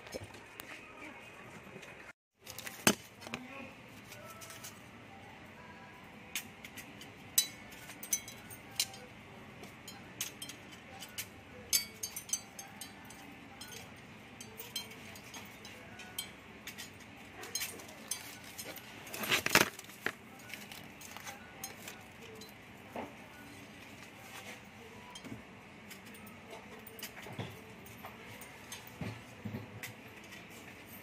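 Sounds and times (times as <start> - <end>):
glass rods clinking: 7.3 - 9.1, 9.7 - 23.1.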